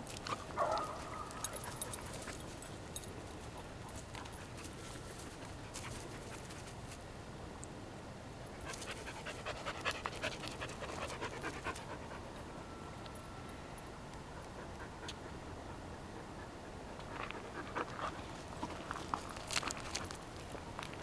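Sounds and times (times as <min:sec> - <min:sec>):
dog panting: 0:08.6 - 0:12.3.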